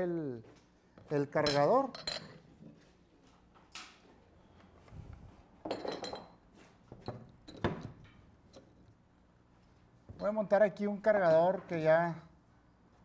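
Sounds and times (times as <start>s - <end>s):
glass jars clinking: 1.4s - 2.4s, 5.7s - 6.4s.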